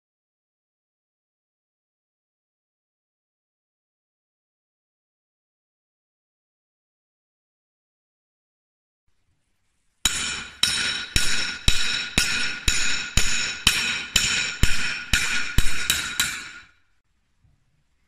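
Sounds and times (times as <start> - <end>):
hammer ringing on steel anvil: 10.1 - 16.8.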